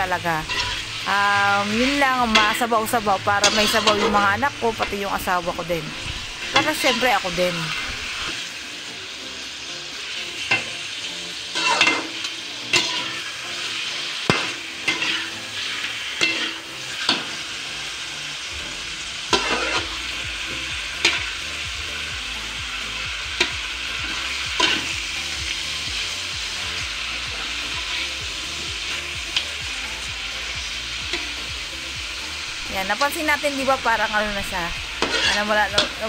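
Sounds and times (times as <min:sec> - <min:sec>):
meat sizzling in a wok: 0:00.0 - 0:36.0
metal spatula scraping a pan: 0:00.4 - 0:05.1, 0:05.8 - 0:08.4, 0:11.4 - 0:17.6, 0:18.5 - 0:20.2, 0:21.0 - 0:21.4, 0:23.4 - 0:25.0, 0:34.9 - 0:36.0.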